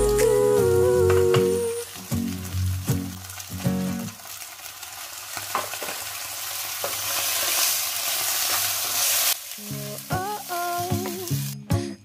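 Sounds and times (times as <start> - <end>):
background music: 0.0 - 4.1, 9.6 - 12.0
tofu sizzling in a frying pan: 1.8 - 11.6.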